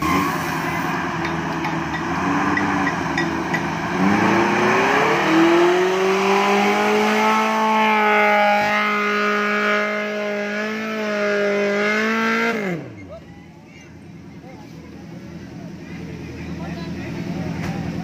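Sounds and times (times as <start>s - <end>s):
off-road vehicle engine revving: 0.0s - 13.5s.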